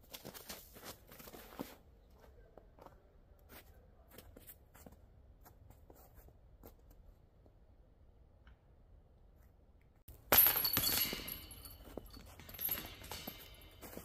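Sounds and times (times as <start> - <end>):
footsteps on snow: 0.0 - 6.9, 13.3 - 14.0
metal chains jangling: 10.2 - 14.0.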